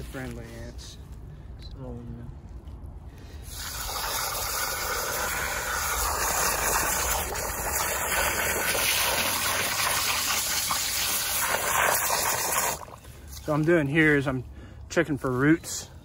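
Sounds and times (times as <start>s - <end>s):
hose water jet gushing into soil: 3.4s - 13.6s.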